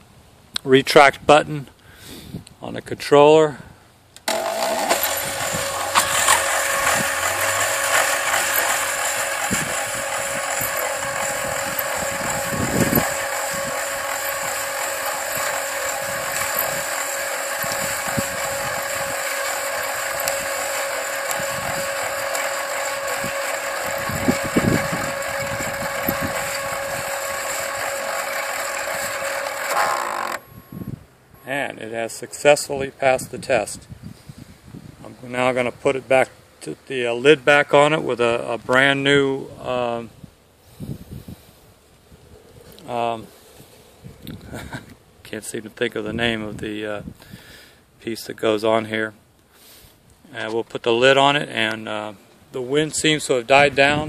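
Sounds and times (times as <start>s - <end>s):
motor whine reeling tape: 4.2s - 31.5s.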